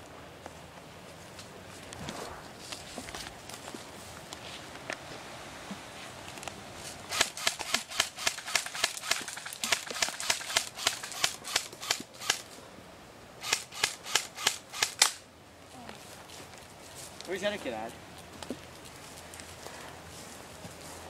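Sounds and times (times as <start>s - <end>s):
airsoft rifle shots snapping: 7.1s - 12.5s, 13.4s - 15.2s.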